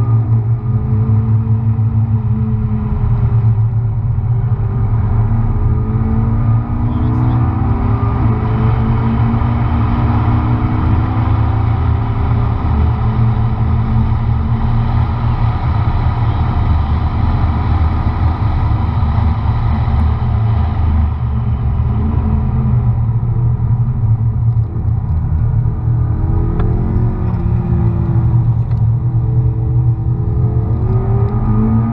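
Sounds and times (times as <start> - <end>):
heavy low cabin rumble: 0.0 - 9.6, 12.0 - 30.6
car engine running at speed: 0.0 - 31.9.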